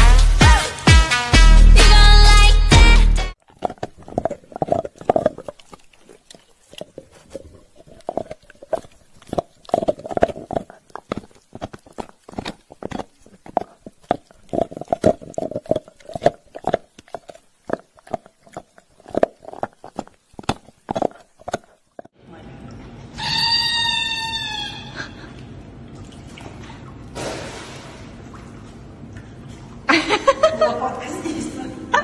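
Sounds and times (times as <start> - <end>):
dog crunching on chew treat: 3.4 - 22.1.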